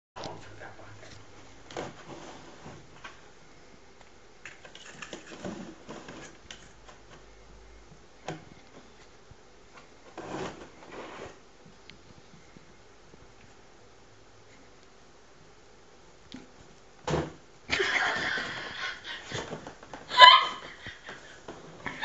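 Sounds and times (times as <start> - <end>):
cardboard box rustling and scraping: 1.8 - 3.0, 5.1 - 6.4, 10.1 - 11.4.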